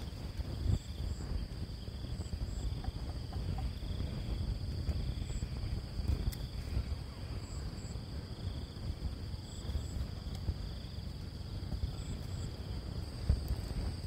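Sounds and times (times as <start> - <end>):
constant low rumble: 0.0 - 14.0
insects trilling: 0.0 - 14.0.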